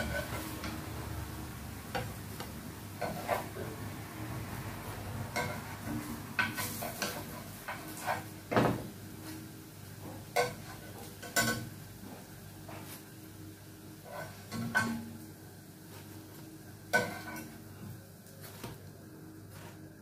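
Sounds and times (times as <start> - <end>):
metal spoon scraping a frying pan: 0.0 - 1.3, 1.9 - 3.8, 5.3 - 8.4, 14.0 - 15.2, 16.9 - 17.6.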